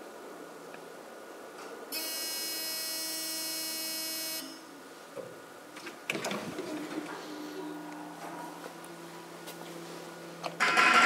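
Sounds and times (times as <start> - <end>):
elevator buzzer: 2.0 - 4.7, 10.6 - 11.0.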